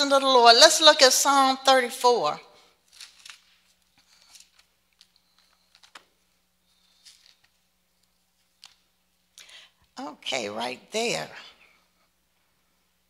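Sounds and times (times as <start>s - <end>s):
faint steady hum: 0.0s - 13.0s
pages being turned: 2.8s - 8.9s.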